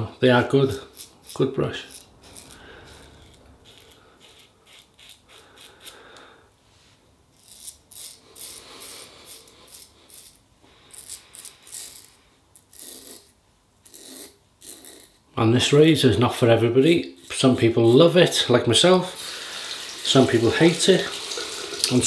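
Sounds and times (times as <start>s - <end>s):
razor scraping stubble: 0.5s - 6.1s, 7.3s - 15.3s.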